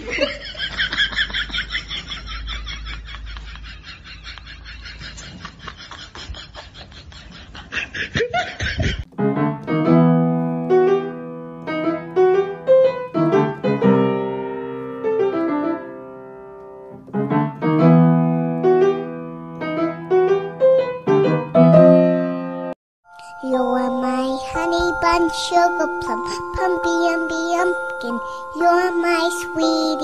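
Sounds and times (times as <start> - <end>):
piano music: 9.1 - 30.0.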